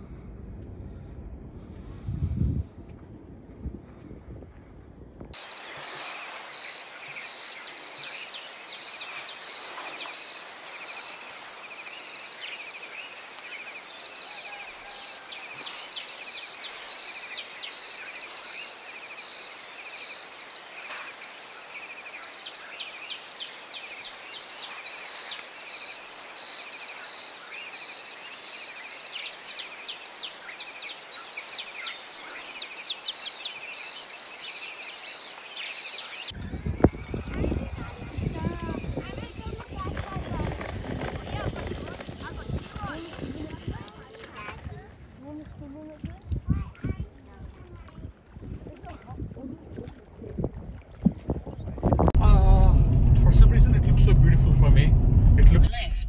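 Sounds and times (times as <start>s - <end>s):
pulsing insect chorus: 5.4s - 43.8s
birds chirping: 5.4s - 44.0s.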